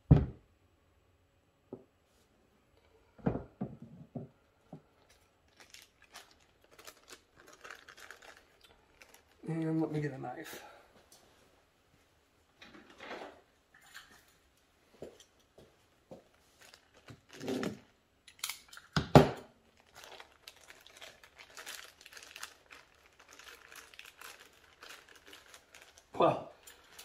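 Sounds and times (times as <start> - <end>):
paper crinkling and tearing: 5.4 - 9.9, 16.4 - 18.5, 19.7 - 27.0.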